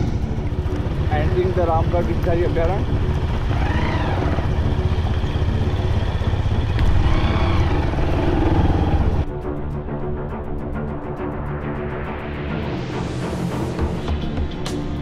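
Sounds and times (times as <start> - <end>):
vehicle engine rumbling: 0.0 - 9.3.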